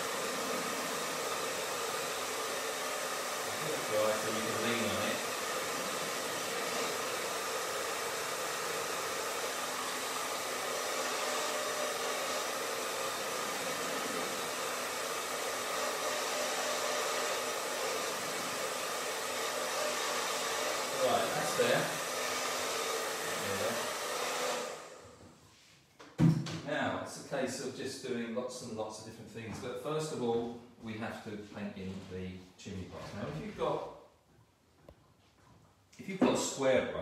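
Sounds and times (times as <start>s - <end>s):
hair dryer running: 0.0s - 25.2s.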